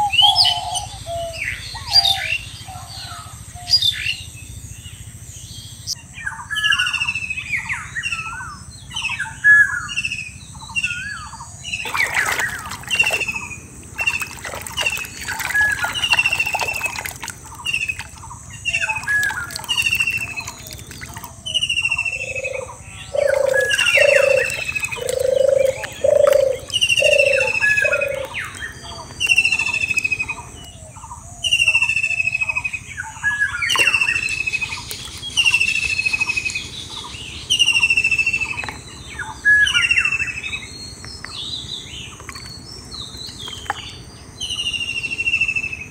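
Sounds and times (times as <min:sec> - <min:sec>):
bird chirps: 0:05.5 - 0:45.9
hands splashing in muddy water: 0:11.8 - 0:21.6
deep hooting bird call: 0:11.8 - 0:36.3.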